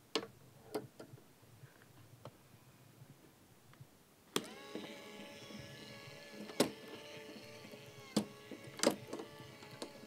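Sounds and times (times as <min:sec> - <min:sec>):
small electric motor running: 0:04.4 - 0:10.0.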